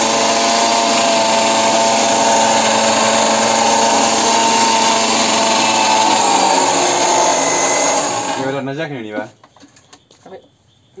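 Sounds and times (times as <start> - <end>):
mixer grinder motor whining: 0.0 - 8.6.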